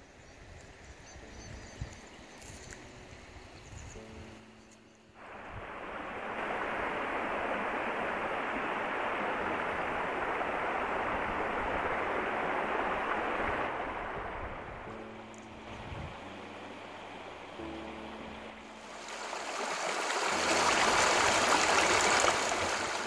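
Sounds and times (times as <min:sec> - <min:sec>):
water rushing: 0:05.2 - 0:23.0.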